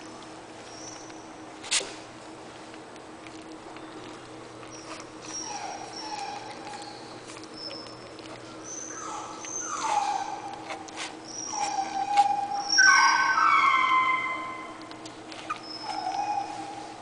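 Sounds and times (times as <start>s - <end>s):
puppies whimpering: 3.8s - 17.0s.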